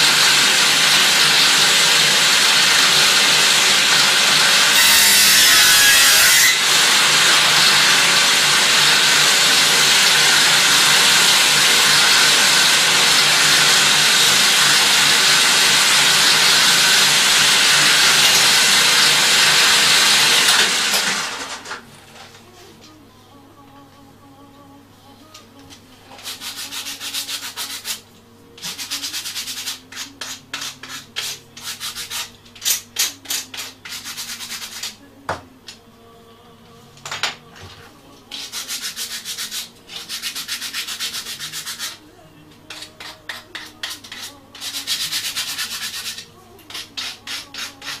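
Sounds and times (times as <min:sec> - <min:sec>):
sandpaper rasping on wood: 0:26.2 - 0:28.0, 0:28.6 - 0:35.0, 0:38.3 - 0:42.0, 0:42.7 - 0:48.0.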